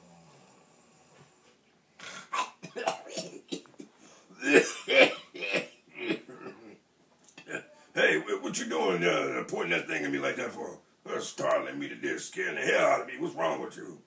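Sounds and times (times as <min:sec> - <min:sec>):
man coughing and clearing throat: 0:02.0 - 0:06.8, 0:07.4 - 0:07.7.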